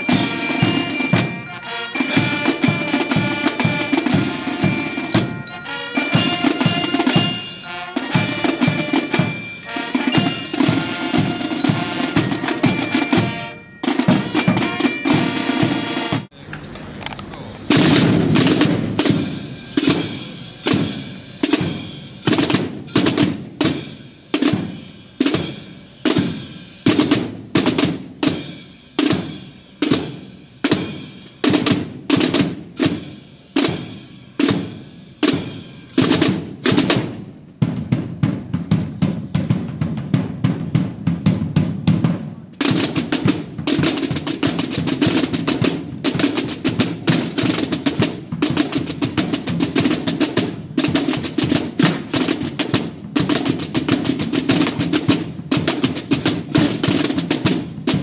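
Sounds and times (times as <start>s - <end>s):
drum line cadence: 0.0s - 58.0s
marching band playing: 0.0s - 58.0s.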